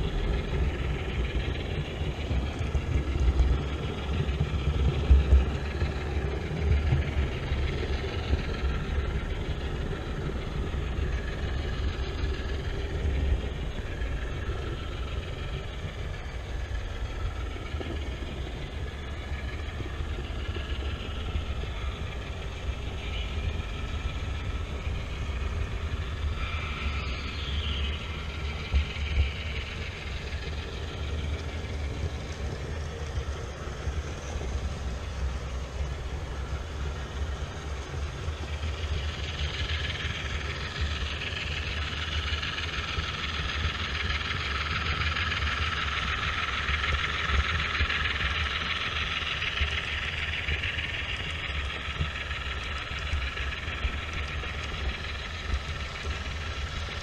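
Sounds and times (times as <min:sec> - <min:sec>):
model train motor hum: 0:00.0 - 0:57.0
wheels rumbling on rail: 0:00.0 - 0:57.0.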